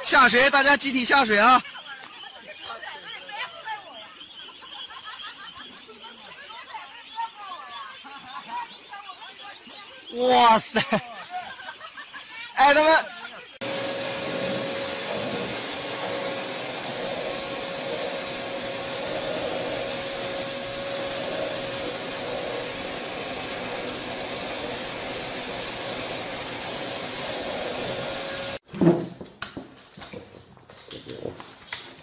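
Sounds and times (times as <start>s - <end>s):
machine motor whining: 13.6s - 28.6s.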